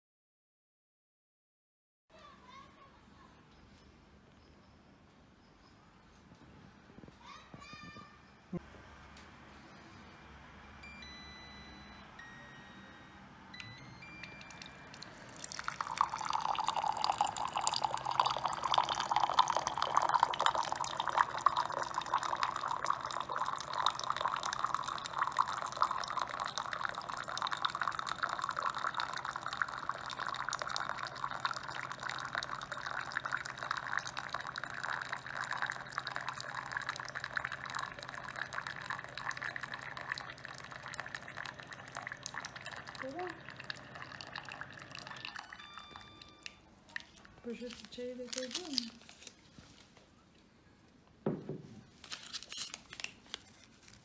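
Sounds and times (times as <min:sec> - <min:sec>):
low steady hum: 0:08.1 - 0:51.1
electronic beep: 0:10.8 - 0:15.6, 0:45.0 - 0:46.7
water pouring into a mug: 0:14.1 - 0:47.2.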